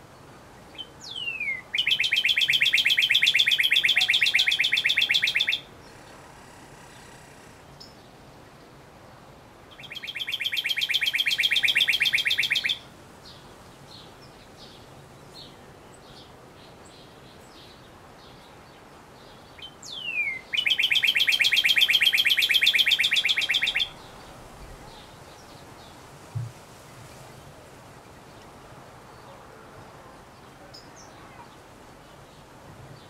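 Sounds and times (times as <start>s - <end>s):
bird singing rapid trills: 0.8s - 6.2s, 9.8s - 12.8s, 19.6s - 24.2s.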